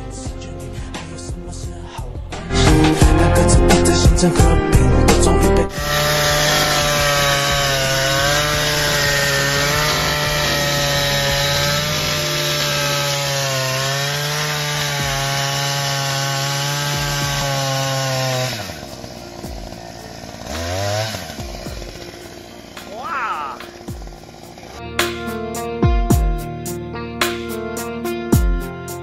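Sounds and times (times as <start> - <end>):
earth auger engine running: 5.7 - 24.8.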